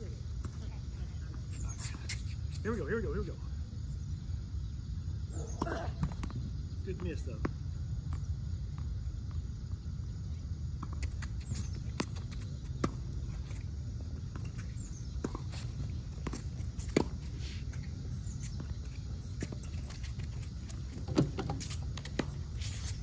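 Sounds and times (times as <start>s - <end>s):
tennis ball bouncing: 14.3s - 17.2s.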